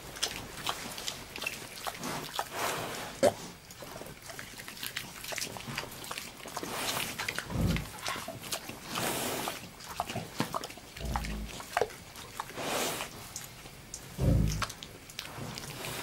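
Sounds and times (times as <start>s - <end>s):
boar grunting: 7.4s - 8.2s, 11.0s - 11.7s, 14.2s - 14.8s
boar nasal huffs: 14.2s - 14.7s.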